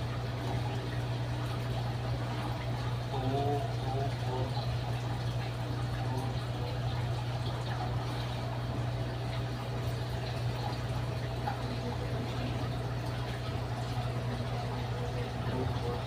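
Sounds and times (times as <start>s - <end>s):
steady hum: 0.0s - 16.0s
water bubbling and trickling: 0.0s - 16.0s.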